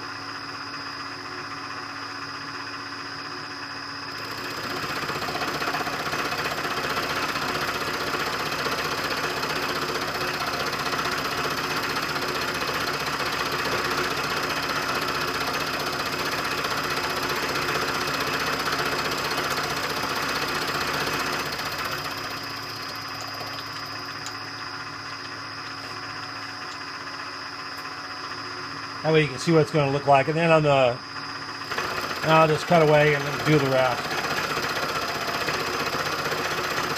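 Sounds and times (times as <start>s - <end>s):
milling machine cutting metal: 4.1s - 27.8s, 31.3s - 36.9s.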